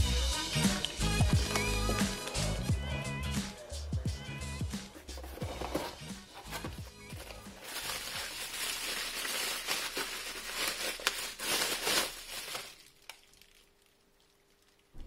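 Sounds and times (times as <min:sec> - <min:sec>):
bubble wrap crinkling: 0:05.1 - 0:15.0.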